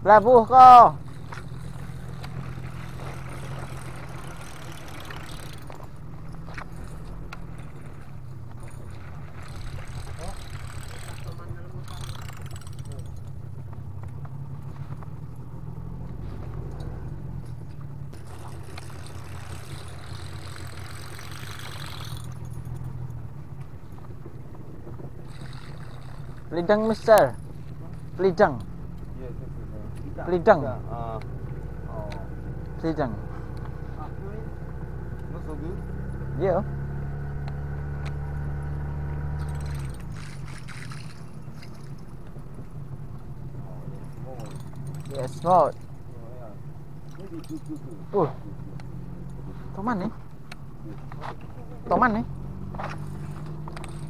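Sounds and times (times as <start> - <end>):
boat engine idling: 0.0 - 36.9, 37.6 - 54.0.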